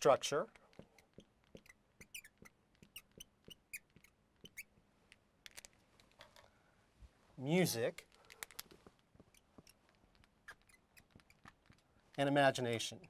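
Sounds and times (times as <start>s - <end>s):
marker squeaking on glass: 0.0s - 4.8s, 8.8s - 13.0s.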